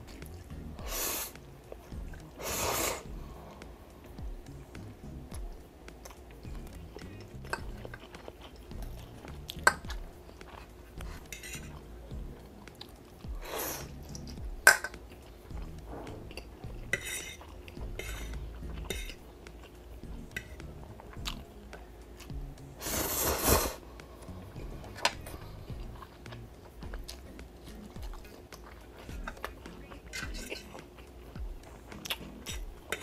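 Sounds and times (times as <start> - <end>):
slurping noodles: 2.4 - 3.1, 13.4 - 14.0, 22.8 - 23.8
chewing noodles: 5.3 - 21.5, 22.2 - 33.0
fork clinking on a plate: 11.2 - 11.8, 17.0 - 17.4.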